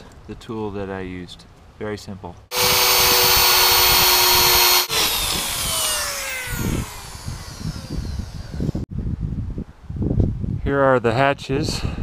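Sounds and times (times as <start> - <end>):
drill whine spinning down: 2.5 - 8.8
electric drill sanding plastic: 2.5 - 8.8.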